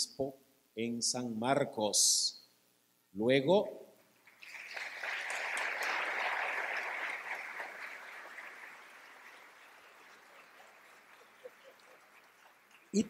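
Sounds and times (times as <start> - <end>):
congregation applauding: 4.2 - 13.0.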